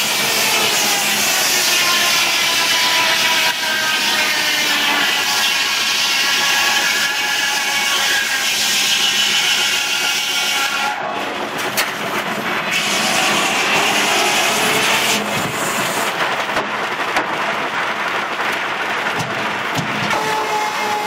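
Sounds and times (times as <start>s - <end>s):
circular saw cutting timber: 0.0s - 11.1s, 12.7s - 16.2s, 20.1s - 21.0s
harsh hiss: 12.6s - 16.4s.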